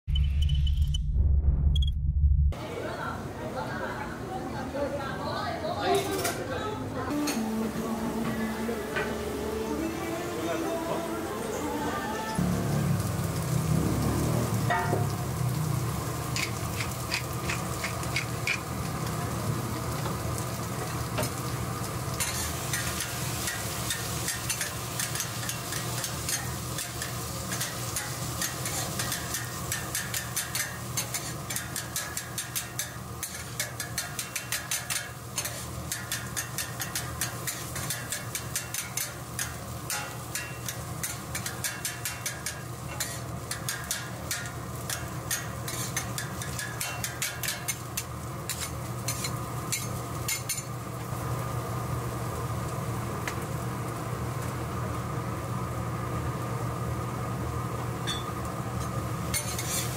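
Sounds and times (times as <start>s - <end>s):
low hum: 0.1s - 2.6s
griddle sizzling: 2.6s - 59.9s
metal spatulas clacking on griddle: 16.3s - 18.7s, 22.2s - 50.8s, 58.1s - 59.9s.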